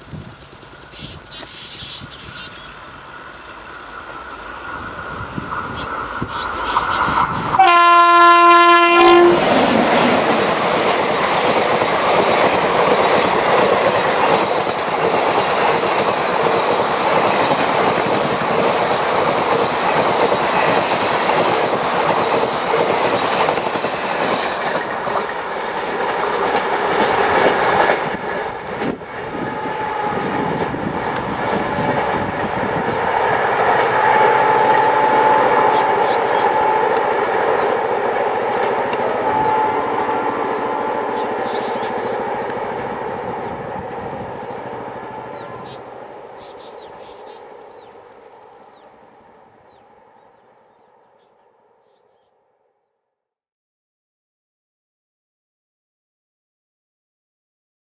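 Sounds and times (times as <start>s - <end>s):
train wheels clattering on rails: 0.0s - 8.1s, 8.8s - 50.8s
locomotive horn: 7.5s - 9.7s, 33.3s - 42.8s.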